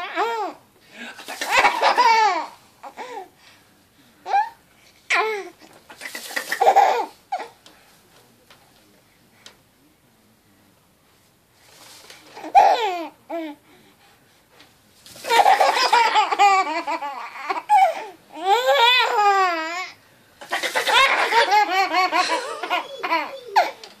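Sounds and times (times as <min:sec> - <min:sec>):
baby laughing: 0:01.2 - 0:03.2, 0:04.3 - 0:07.6, 0:12.4 - 0:13.2, 0:15.2 - 0:24.0.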